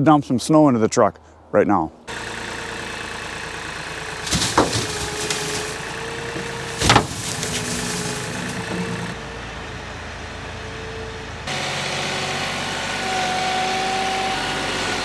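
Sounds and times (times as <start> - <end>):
loader engine running: 2.1 - 15.0
sharp clunks: 4.2 - 9.2.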